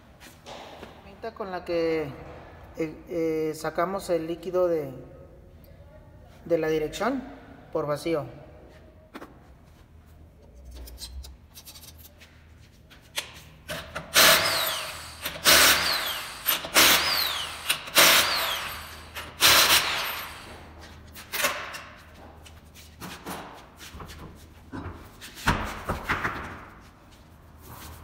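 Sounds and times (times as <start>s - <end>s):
impact wrench bursts with whine: 13.7s - 20.7s.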